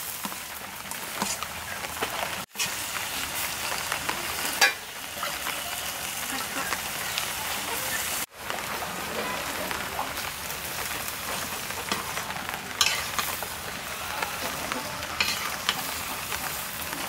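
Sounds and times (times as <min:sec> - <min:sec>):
leaves sizzling in hot oil: 0:00.0 - 0:17.0
metal spatula scraping a pan: 0:04.4 - 0:05.5, 0:11.2 - 0:17.0.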